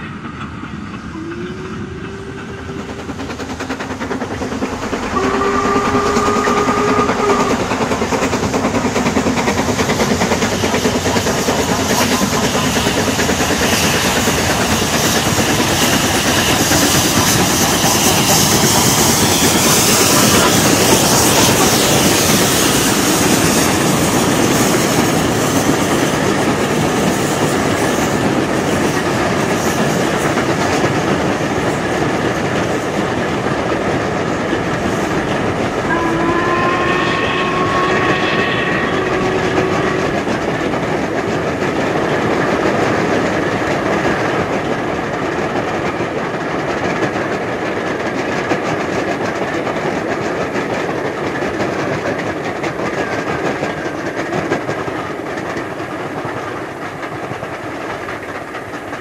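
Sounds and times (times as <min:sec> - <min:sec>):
steam train rumble: 0:00.0 - 0:59.0
locomotive whistle: 0:01.0 - 0:03.3, 0:04.9 - 0:07.9, 0:15.8 - 0:23.9, 0:35.8 - 0:40.6.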